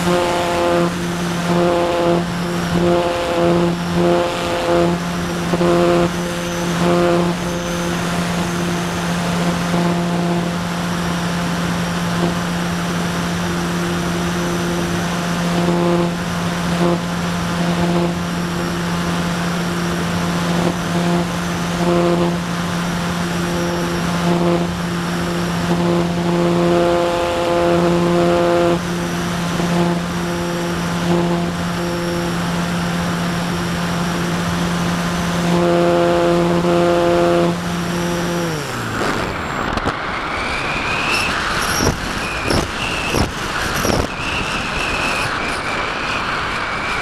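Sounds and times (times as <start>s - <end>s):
electric motor and propeller running: 0.0s - 47.0s
faint high whistle: 40.1s - 47.0s.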